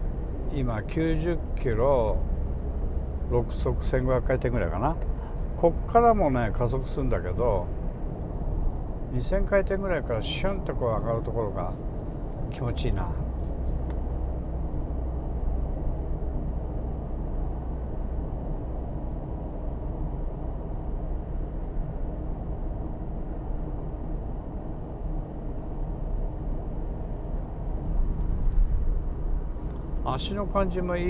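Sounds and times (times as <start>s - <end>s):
car engine drone in cabin: 0.0s - 31.0s
tyre and road noise: 26.8s - 31.0s.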